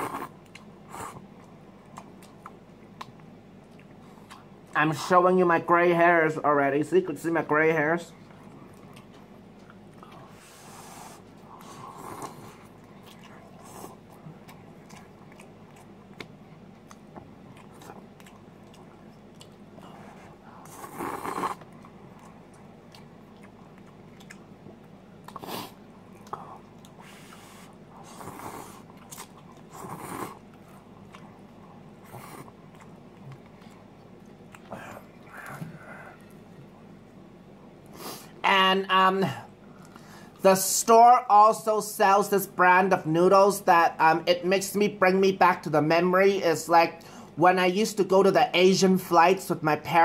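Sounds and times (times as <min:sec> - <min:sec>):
person slurping noodles: 0:00.0 - 0:00.3, 0:20.7 - 0:21.6
person chewing: 0:00.0 - 0:04.8, 0:08.2 - 0:37.2.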